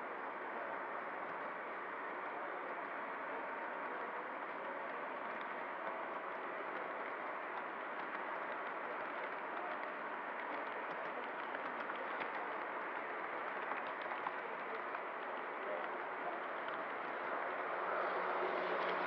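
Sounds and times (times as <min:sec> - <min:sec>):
faint irregular clicks: 0:03.8 - 0:19.0.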